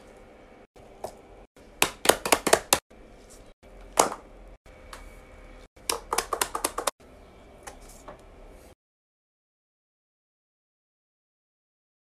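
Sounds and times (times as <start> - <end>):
fingers tapping: 5.9 - 6.9.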